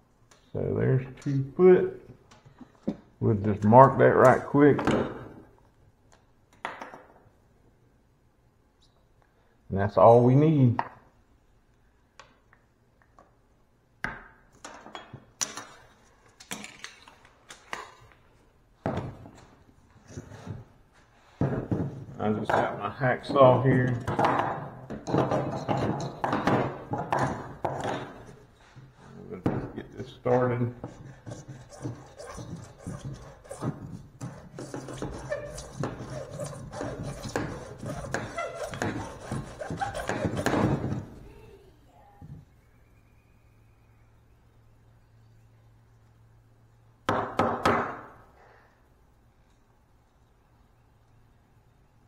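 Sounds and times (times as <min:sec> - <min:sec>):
hacksaw cutting plastic pipe: 0:24.0 - 0:28.4, 0:30.8 - 0:41.1.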